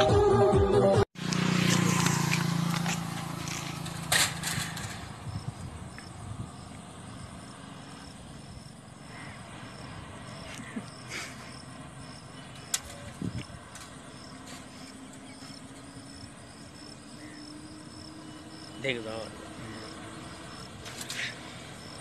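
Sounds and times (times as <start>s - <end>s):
music: 0.0s - 1.1s
motorcycle engine running: 1.2s - 10.9s, 11.6s - 22.0s
insect chirping: 1.8s - 22.0s.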